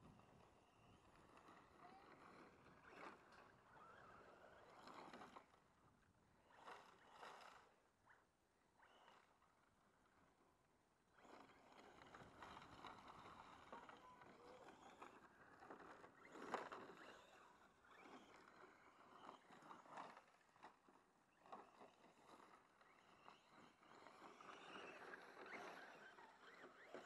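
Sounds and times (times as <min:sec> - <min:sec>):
electric motor whine: 0:00.6 - 0:05.6, 0:11.2 - 0:20.7.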